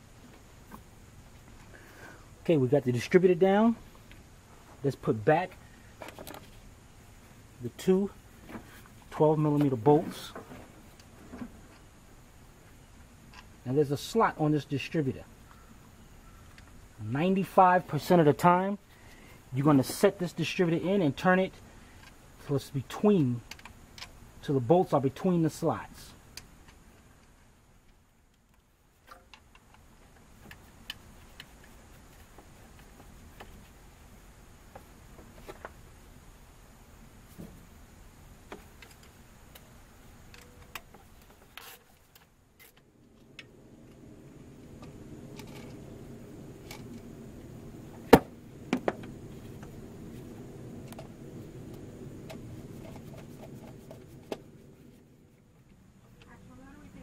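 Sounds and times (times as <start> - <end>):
faint clicks and taps of parts: 21.5 - 22.2, 22.9 - 24.2, 26.3 - 33.9, 38.4 - 44.0.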